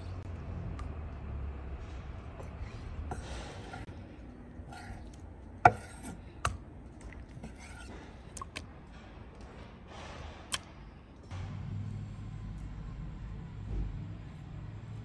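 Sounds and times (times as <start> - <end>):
knife slicing and scraping meat: 4.6 - 6.3, 7.3 - 8.1.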